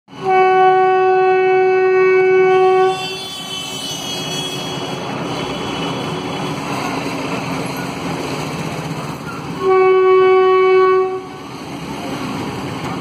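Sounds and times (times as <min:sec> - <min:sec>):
train horn blast: 0:00.1 - 0:06.7, 0:09.6 - 0:11.4
street traffic: 0:00.1 - 0:13.0
train rumbling: 0:00.1 - 0:13.0.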